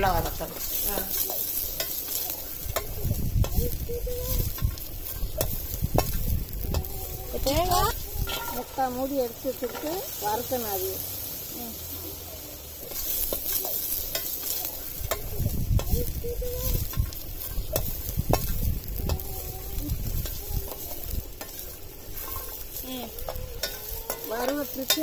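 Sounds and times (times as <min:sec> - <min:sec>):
food sizzling in hot oil: 0:00.0 - 0:25.0
metal ladle scraping steel pot: 0:06.7 - 0:10.0, 0:20.7 - 0:22.7.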